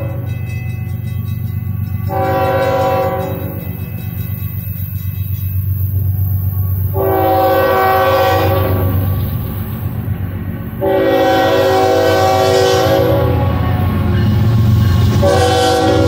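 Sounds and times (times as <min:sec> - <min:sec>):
locomotive air horn blasts: 0:02.1 - 0:03.6, 0:06.9 - 0:09.3, 0:10.8 - 0:14.4, 0:15.1 - 0:16.0.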